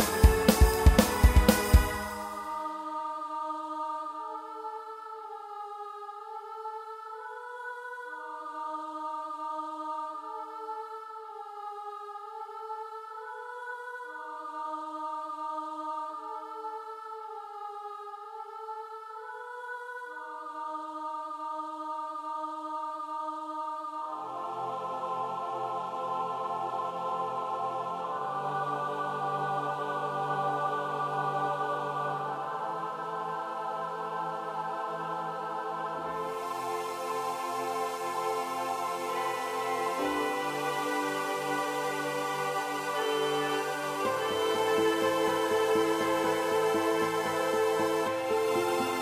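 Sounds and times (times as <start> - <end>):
keyboard playing sustained chords: 36.1 - 49.0.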